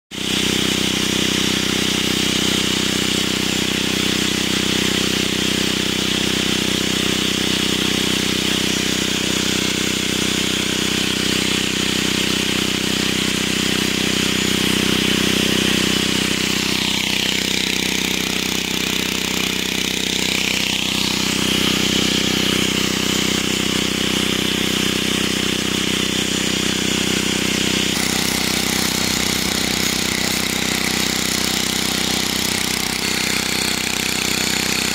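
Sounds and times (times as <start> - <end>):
angle grinder grinding metal: 7.0 - 34.9.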